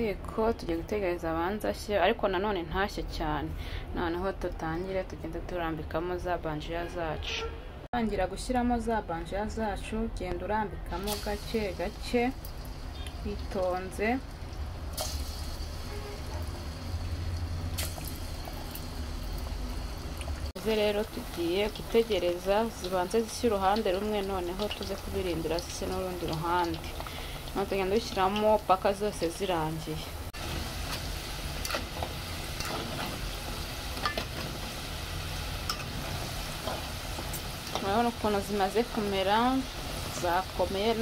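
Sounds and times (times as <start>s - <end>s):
oil sizzling and bubbling: 10.9s - 41.0s
sharp crackles of frying: 10.9s - 41.0s.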